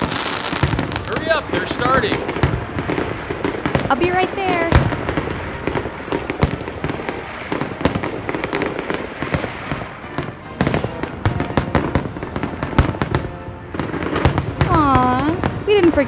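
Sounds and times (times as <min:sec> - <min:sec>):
fireworks bangs and crackling: 0:00.0 - 0:16.0.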